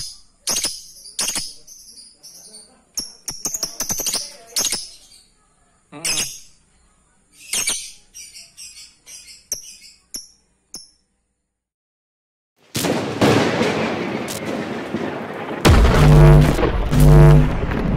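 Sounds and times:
bird chirping: 0.0s - 11.1s.

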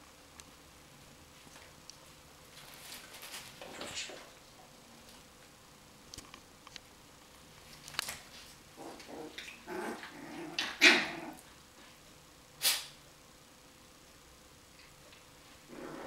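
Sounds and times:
dogs growling: 8.8s - 11.5s, 15.7s - 16.0s.

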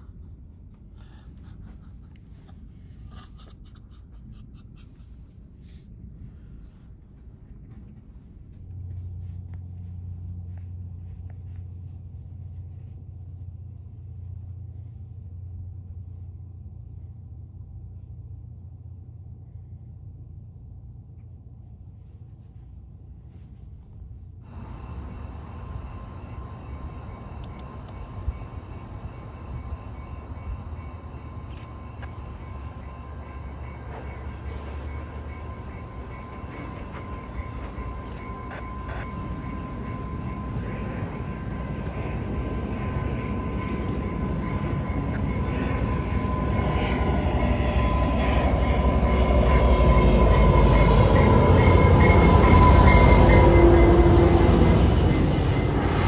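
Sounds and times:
train rumble: 0.0s - 56.0s
high ringing from rails: 24.5s - 56.0s.

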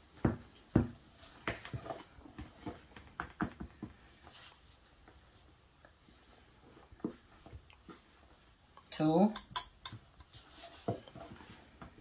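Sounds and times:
cup and spatula taps and scrapes: 9.4s - 11.3s.

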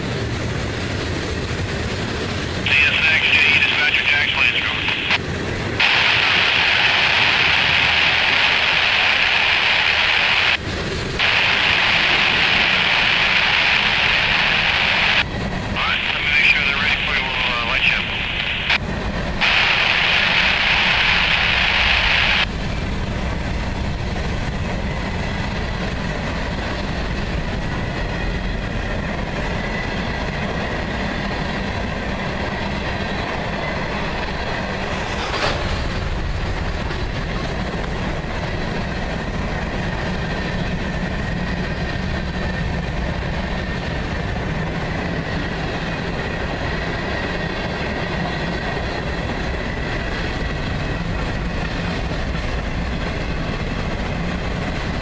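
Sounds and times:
train wheels rumbling on rails: 0.0s - 55.0s
faint high whine: 11.2s - 18.8s, 19.4s - 22.5s.

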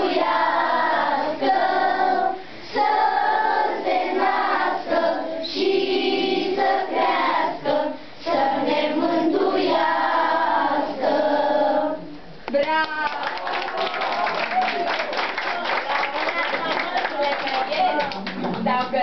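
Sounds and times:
children singing in unison: 0.0s - 12.0s.

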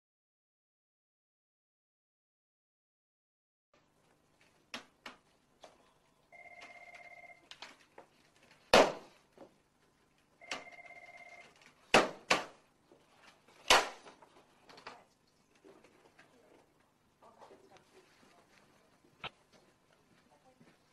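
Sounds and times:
telephone ringing: 6.3s - 7.5s, 10.4s - 11.6s
loud sharp bangs: 8.7s - 9.2s.

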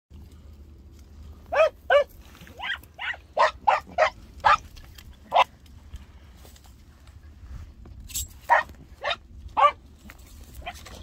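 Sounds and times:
dog barking in high yelps: 1.5s - 4.7s, 5.3s - 5.5s, 8.4s - 9.8s, 10.6s - 11.0s.

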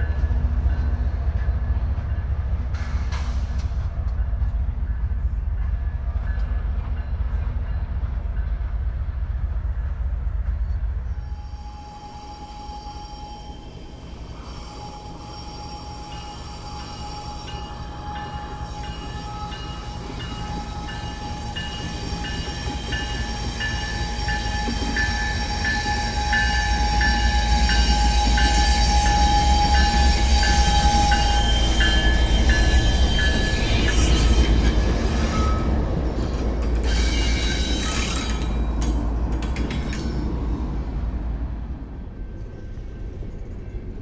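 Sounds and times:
crossing bell ringing: 11.3s - 39.0s.

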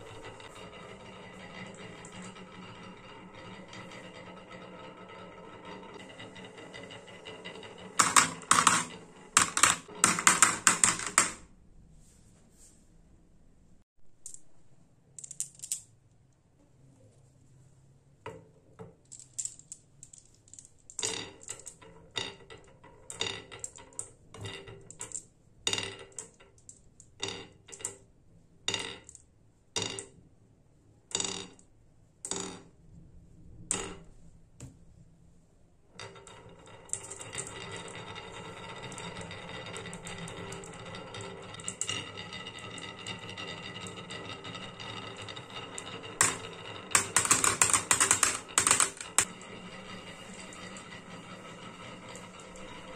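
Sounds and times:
marbles rolling down wooden track: 0.0s - 11.5s, 18.8s - 28.1s, 28.7s - 29.2s, 29.8s - 30.2s, 31.1s - 31.6s, 32.3s - 32.7s, 36.0s - 52.9s
marbles clicking on wood: 0.1s - 11.4s, 19.1s - 28.0s, 36.0s - 51.0s.

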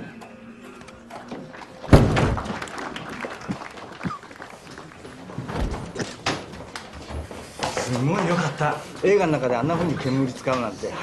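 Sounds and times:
loud deep thud: 1.9s - 2.5s.

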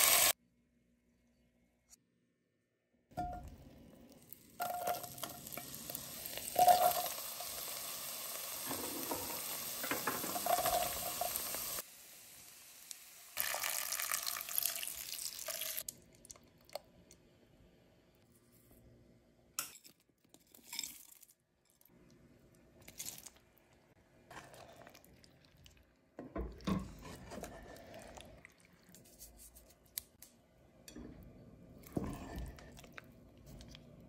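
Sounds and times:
vegetables sizzling in butter: 0.0s - 0.4s, 4.2s - 15.9s.

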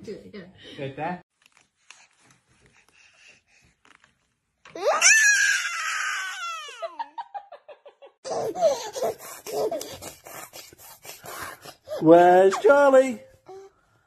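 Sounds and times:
baby giggling: 8.2s - 10.4s.

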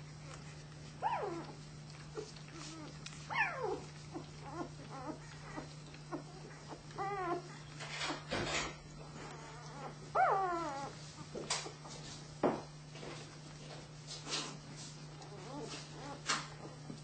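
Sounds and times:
puppies whimpering and squeaking: 0.1s - 11.8s, 15.1s - 16.7s.

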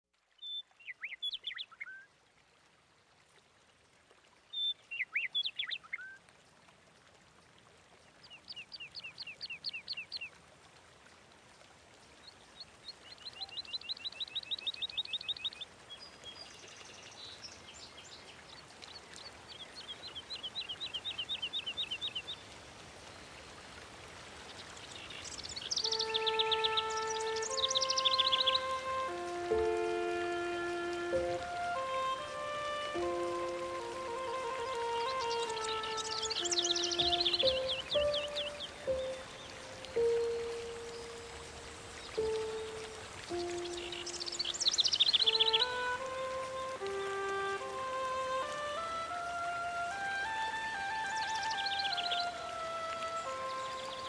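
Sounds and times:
faint steady hiss: 0.0s - 54.0s
songbird trilling: 25.3s - 28.7s, 35.0s - 39.6s.

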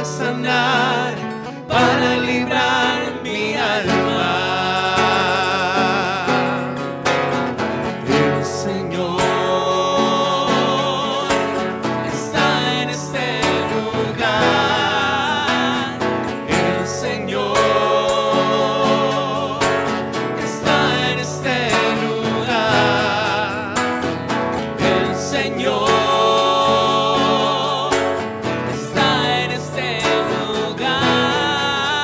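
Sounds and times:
guitar accompaniment: 0.0s - 32.0s
person singing with vibrato: 0.0s - 32.0s.

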